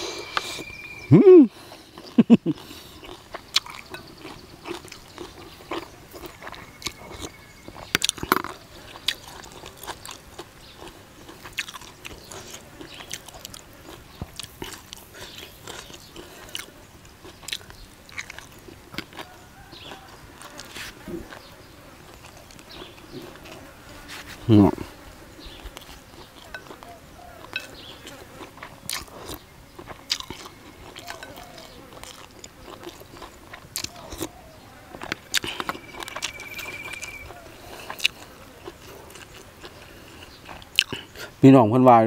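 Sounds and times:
man chewing crunchy food: 0:00.0 - 0:41.4.

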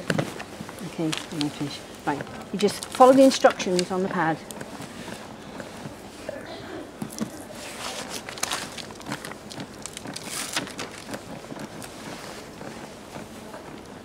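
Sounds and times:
pad backing crinkling: 0:00.0 - 0:06.3, 0:06.9 - 0:14.0
clothing rustling: 0:00.0 - 0:14.0.

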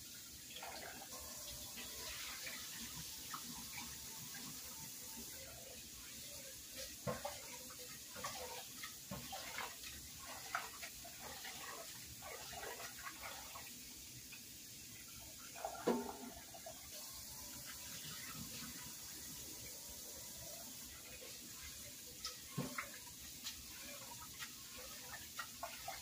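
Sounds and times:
faucet running into metal pot: 0:00.1 - 0:26.0
pot knocking against sink: 0:15.8 - 0:16.4.

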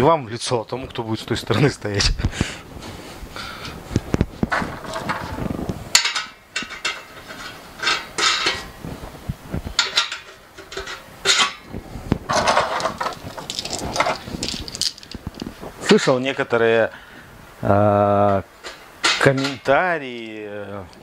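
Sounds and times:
small steel parts clinking: 0:09.8 - 0:11.7, 0:12.3 - 0:16.1.

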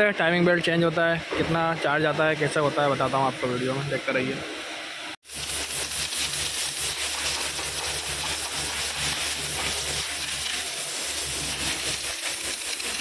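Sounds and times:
compressed air hissing: 0:05.2 - 0:13.0.

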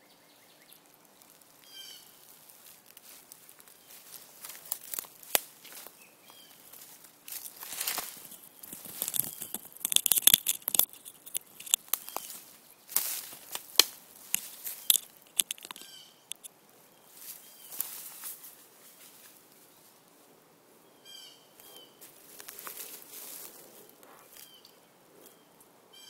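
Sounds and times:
leaves rustling: 0:00.6 - 0:20.0, 0:21.2 - 0:24.6
twigs snapping: 0:02.8 - 0:05.9, 0:06.7 - 0:16.5.

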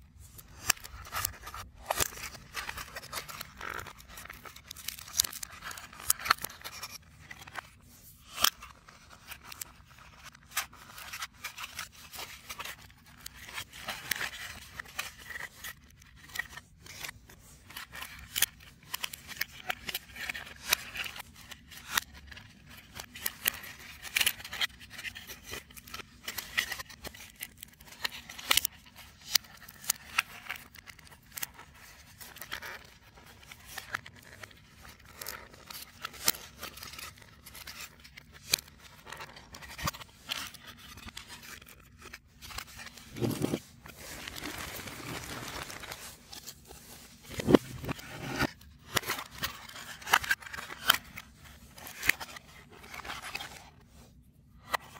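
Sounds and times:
puzzle pieces scraping: 0:31.5 - 0:53.7.

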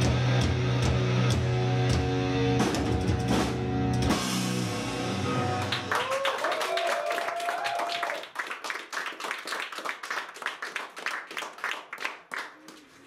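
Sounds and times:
small audience clapping: 0:05.6 - 0:13.0.

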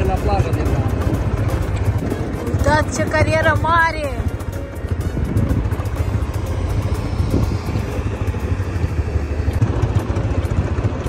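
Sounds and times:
quad bike engine rumbling: 0:00.0 - 0:11.0.

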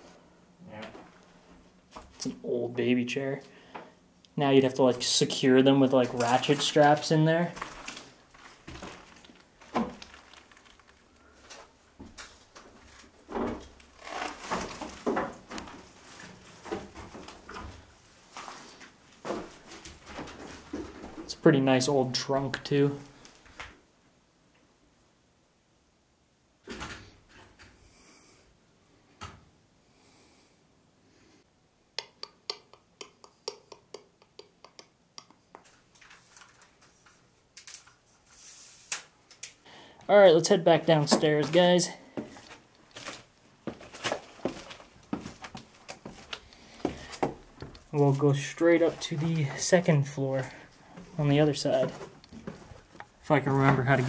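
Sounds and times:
footsteps on debris-strewn wooden floor: 0:06.0 - 0:21.3, 0:40.8 - 0:49.7, 0:50.4 - 0:54.0
soft scuffing: 0:41.1 - 0:49.6, 0:50.7 - 0:53.0.

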